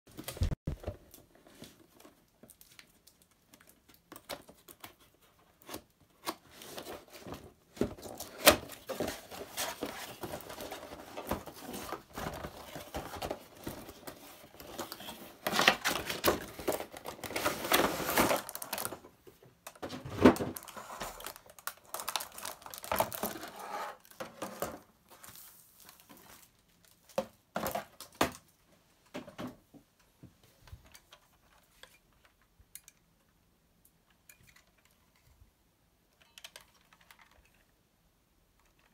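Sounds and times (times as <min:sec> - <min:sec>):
plastic packaging crinkling: 0:08.0 - 0:19.1, 0:20.5 - 0:27.8.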